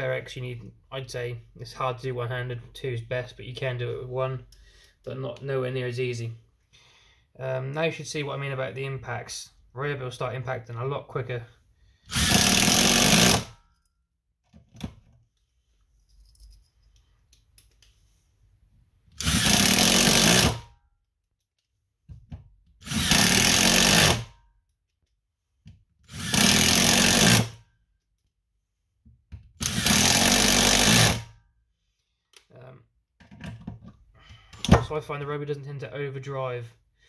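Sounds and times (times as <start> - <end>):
impact driver driving screws: 12.1 - 13.6, 19.2 - 20.7, 22.8 - 24.3, 26.1 - 27.6, 29.6 - 31.3.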